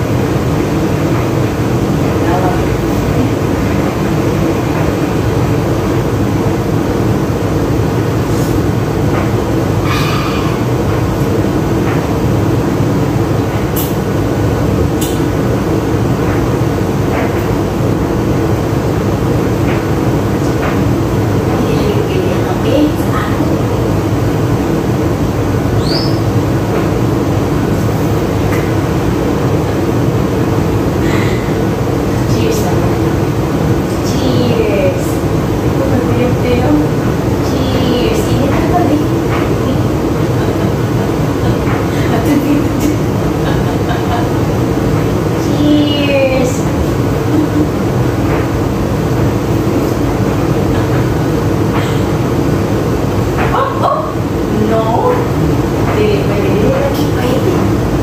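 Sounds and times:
low mechanical rumble: 0:00.0 - 0:58.0
parrot chirp: 0:25.8 - 0:26.3.

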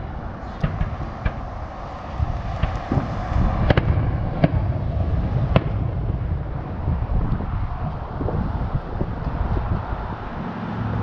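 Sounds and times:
fireworks bangs: 0:00.0 - 0:07.2
low background rumble: 0:00.0 - 0:11.0.

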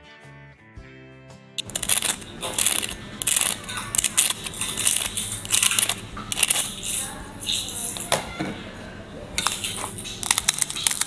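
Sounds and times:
crisp shells crackling in hand: 0:01.6 - 0:08.1, 0:09.4 - 0:11.0.

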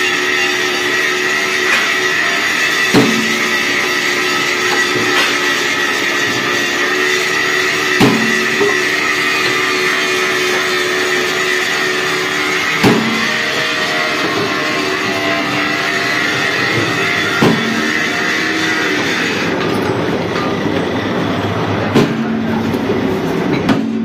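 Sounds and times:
sharp metal clanks: 0:00.0 - 0:18.5
machinery humming: 0:00.0 - 0:24.0.

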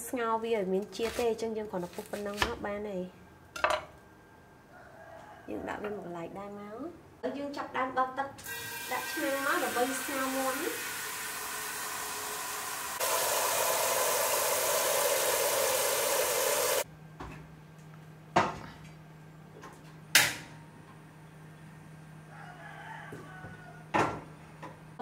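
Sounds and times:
faucet running into strainer: 0:08.4 - 0:16.8.

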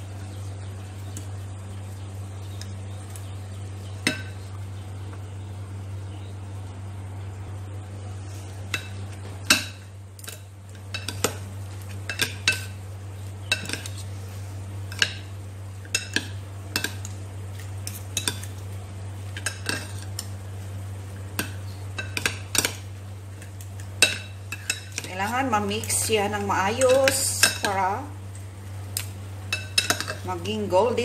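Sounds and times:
steady low hum: 0:00.0 - 0:31.0
cutlery clinking on a ceramic bowl: 0:29.5 - 0:30.2.

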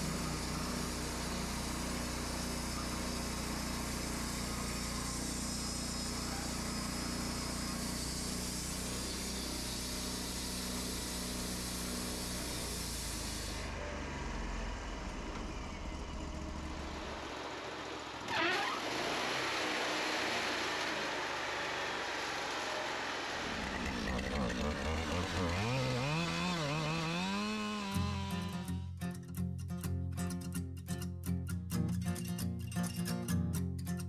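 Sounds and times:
sawmill engine under load: 0:00.0 - 0:28.8
band blade sawing wood: 0:23.3 - 0:28.8.

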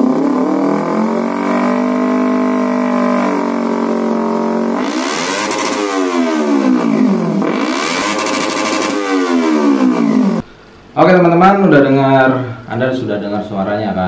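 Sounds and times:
motorcycle engine revving: 0:00.0 - 0:10.5.

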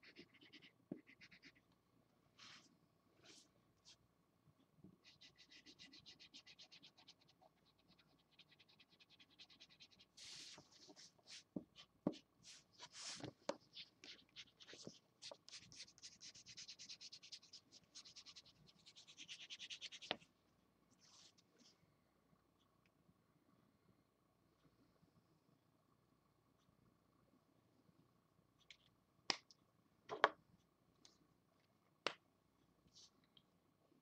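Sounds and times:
marker scratching on paper: 0:00.0 - 0:01.6, 0:05.0 - 0:20.2.

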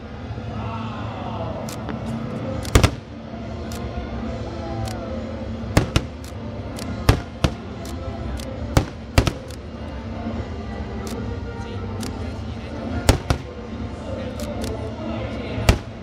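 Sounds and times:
fireworks bursting: 0:02.7 - 0:03.1, 0:05.8 - 0:07.9, 0:08.7 - 0:09.6, 0:13.0 - 0:13.6, 0:15.6 - 0:16.0.

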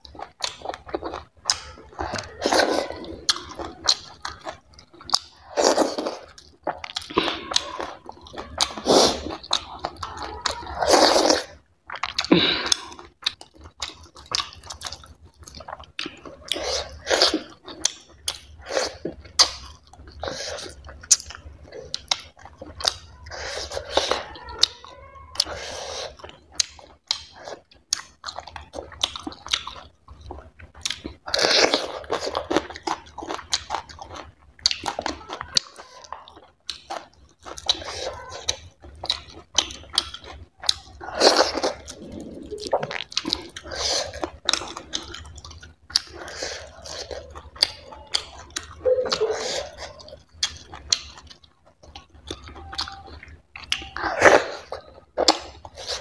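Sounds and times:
person chewing food: 0:00.0 - 0:56.0.

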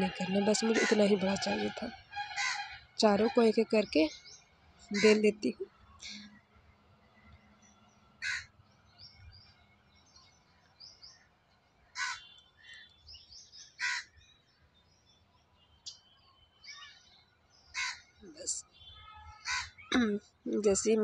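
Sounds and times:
small birds chirping softly: 0:00.0 - 0:21.0
crows cawing: 0:02.2 - 0:02.8, 0:04.9 - 0:05.2, 0:08.2 - 0:08.5, 0:11.9 - 0:12.4, 0:13.8 - 0:14.2, 0:17.7 - 0:18.1, 0:19.4 - 0:19.8.

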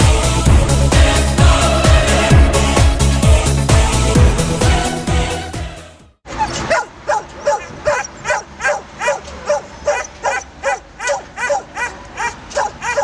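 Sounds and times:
dog barking in high yelps: 0:06.3 - 0:13.0.

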